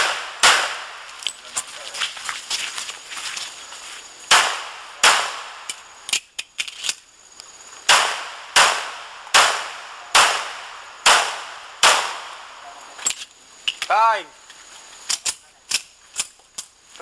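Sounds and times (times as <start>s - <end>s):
pistol shots: 0.0s - 1.1s, 4.3s - 5.8s, 7.9s - 12.6s.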